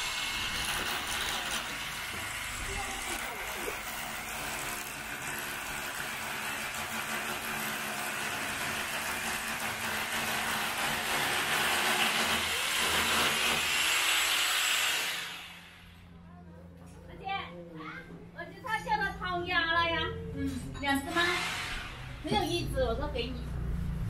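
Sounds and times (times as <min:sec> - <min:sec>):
small motor humming: 0:00.0 - 0:15.8.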